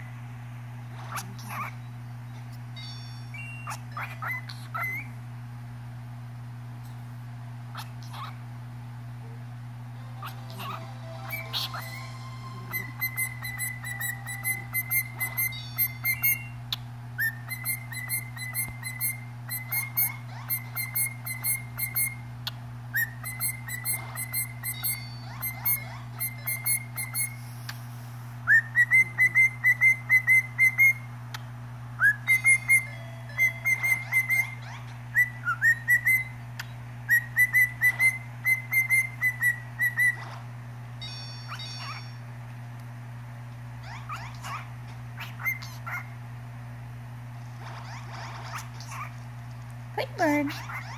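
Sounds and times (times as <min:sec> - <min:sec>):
cockatiel whistling chirps: 0:03.3 - 0:05.1, 0:10.2 - 0:22.3, 0:22.9 - 0:27.4, 0:28.5 - 0:31.4, 0:32.0 - 0:40.2, 0:41.4 - 0:42.2, 0:45.2 - 0:46.1.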